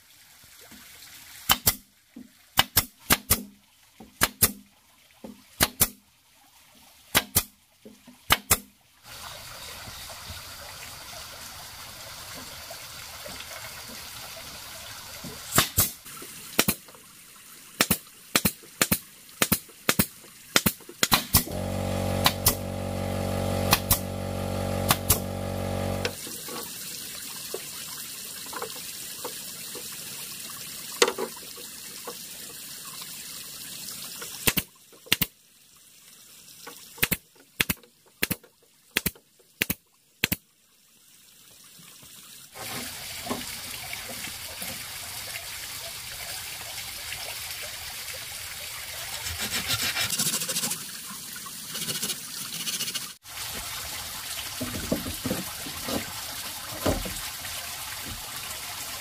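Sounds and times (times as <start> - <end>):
nails driven into bamboo: 1.5 - 1.8, 2.6 - 3.5, 4.2 - 4.6, 5.6 - 6.0, 7.2 - 7.5, 8.3 - 8.7, 15.5 - 16.0, 17.8 - 22.8, 23.4 - 26.2, 34.5 - 35.3, 37.0 - 38.4, 39.0 - 40.4
motor running: 21.4 - 26.2.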